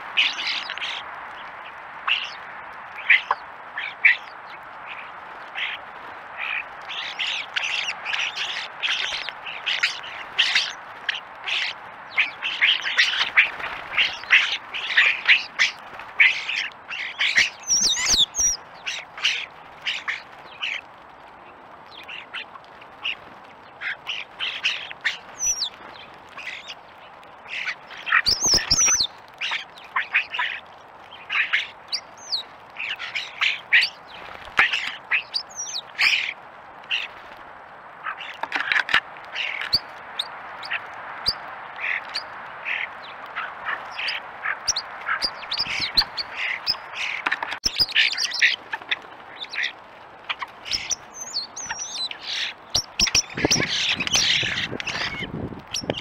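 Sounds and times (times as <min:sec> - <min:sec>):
starlings squawking and chattering: 0:00.0 - 0:56.0
high bird whistles: 0:14.0 - 0:19.0, 0:28.2 - 0:29.6.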